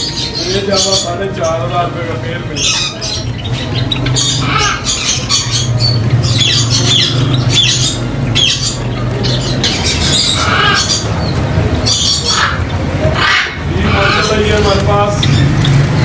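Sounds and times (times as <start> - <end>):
birds squawking: 0.0 - 16.0.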